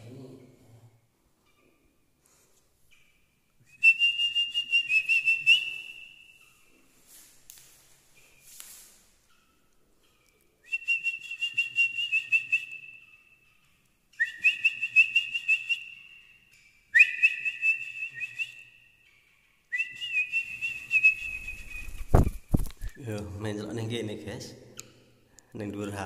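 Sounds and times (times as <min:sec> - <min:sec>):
trilling two-tone whistle: 0:03.7 - 0:06.6, 0:10.7 - 0:13.2, 0:14.1 - 0:18.9, 0:19.7 - 0:22.0.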